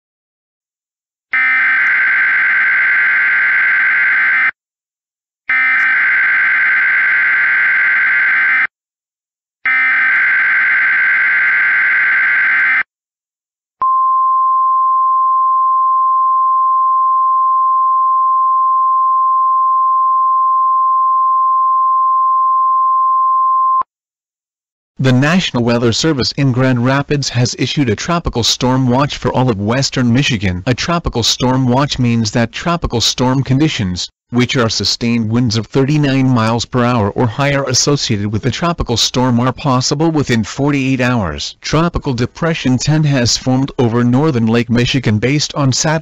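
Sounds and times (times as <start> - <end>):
steady warning alarm tone: 1.3 - 4.6, 5.5 - 8.7, 9.7 - 12.9.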